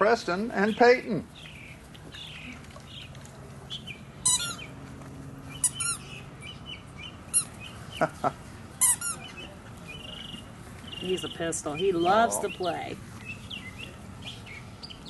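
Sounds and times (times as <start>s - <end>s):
rubber ball squeaking: 4.2s - 4.7s, 5.6s - 6.1s, 8.8s - 9.3s.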